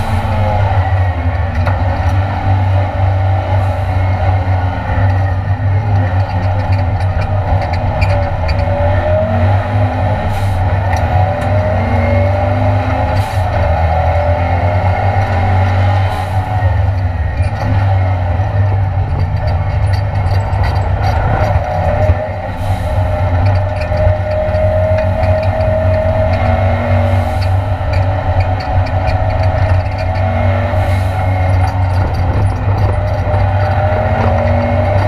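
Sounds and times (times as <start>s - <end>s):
race car engine accelerating: 0.0s - 35.0s.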